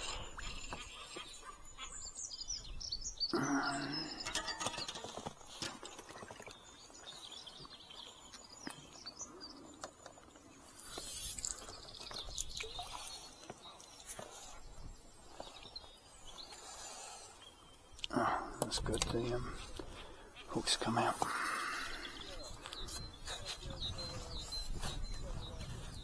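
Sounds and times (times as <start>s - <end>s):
small birds chirping: 0.0s - 26.0s.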